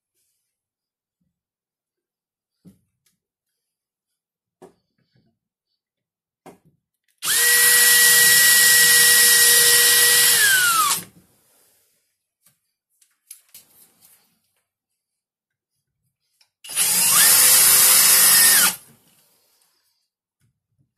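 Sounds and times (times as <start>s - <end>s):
cordless drill running: 7.2s - 11.1s, 16.7s - 18.8s.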